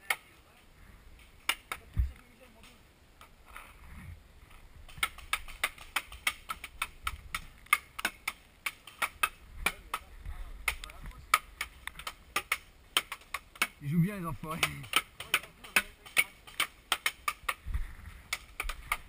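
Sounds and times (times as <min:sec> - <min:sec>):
paintball markers shooting: 0:04.9 - 0:13.8, 0:14.4 - 0:17.6, 0:18.3 - 0:19.0
paintballs hitting wooden walls: 0:04.9 - 0:13.8, 0:14.5 - 0:17.7, 0:18.3 - 0:19.0.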